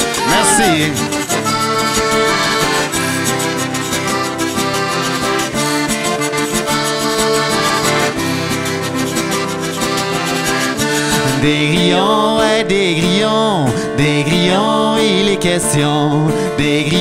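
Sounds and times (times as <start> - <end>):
accordion melody: 0.0 - 12.6
strummed acoustic guitar: 0.0 - 17.0.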